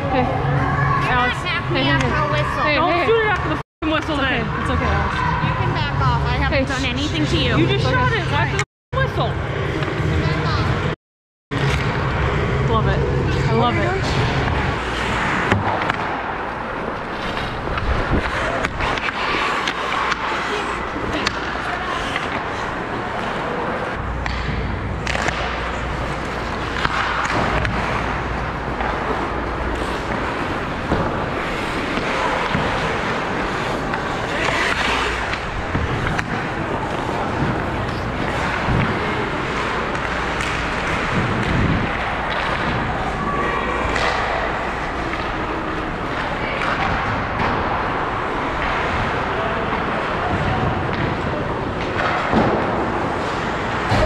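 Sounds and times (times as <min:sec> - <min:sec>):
ice skates scraping on ice: 0:13.4 - 0:46.7.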